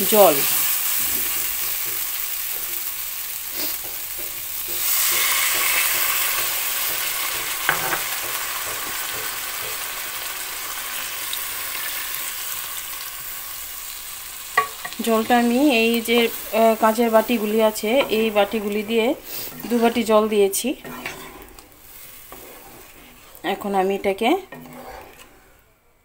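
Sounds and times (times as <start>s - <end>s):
food sizzling in a pan: 0.0s - 25.7s
wooden spatula stirring: 14.6s - 25.7s.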